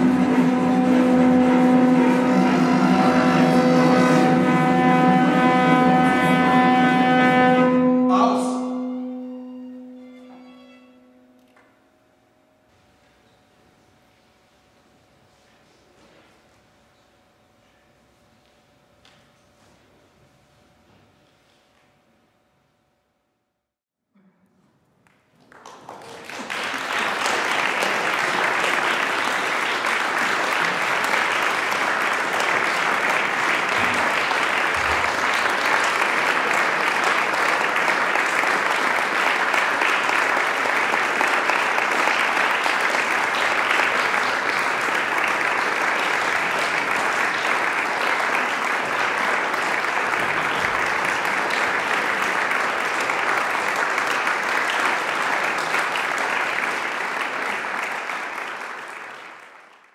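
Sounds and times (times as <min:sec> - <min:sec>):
audience applauding: 0:00.0 - 0:07.7, 0:25.3 - 0:59.9.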